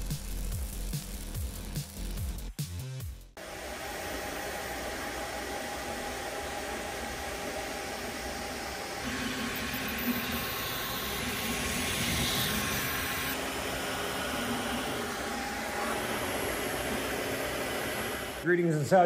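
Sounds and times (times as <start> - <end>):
fan hiss: 3.4 - 19.0
stepper motors humming: 4.4 - 19.0.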